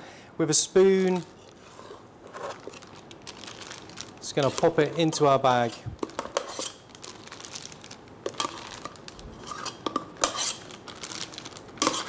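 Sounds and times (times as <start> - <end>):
metal spoon scraping a pot: 4.5 - 6.8, 9.3 - 10.6, 11.8 - 12.0.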